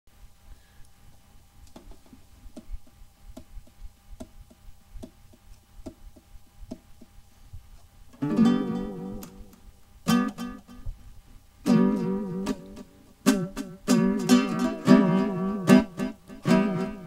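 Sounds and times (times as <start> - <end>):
ukulele strummed chord: 11.7 - 17.0.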